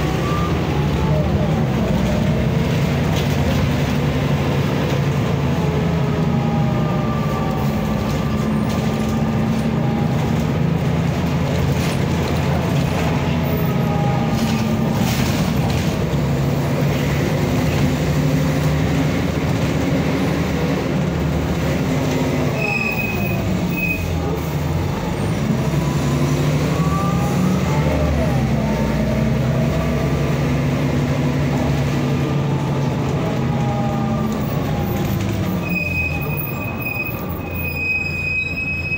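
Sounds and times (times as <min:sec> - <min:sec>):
bus diesel engine running: 0:00.0 - 0:38.9
brief high squeal: 0:22.6 - 0:24.1, 0:35.6 - 0:38.9.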